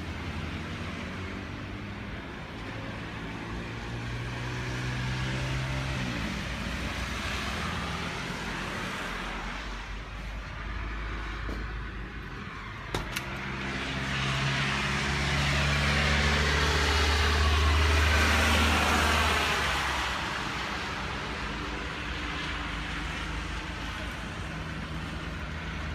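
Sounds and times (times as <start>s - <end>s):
traffic rumble: 0.0s - 25.9s
vehicle passing: 10.6s - 21.6s.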